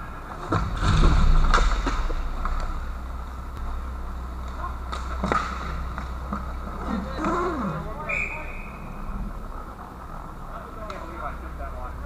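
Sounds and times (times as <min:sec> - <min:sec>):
steady low hum: 0:00.0 - 0:12.0
hockey sticks and puck clacking: 0:04.4 - 0:08.7.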